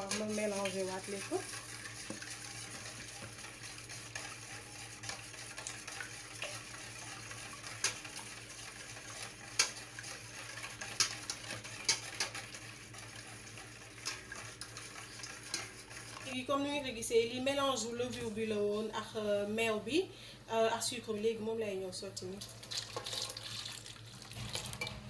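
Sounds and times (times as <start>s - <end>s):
whisk clinking on bowl: 0.0s - 16.3s
whisk swishing in bowl: 0.0s - 16.4s.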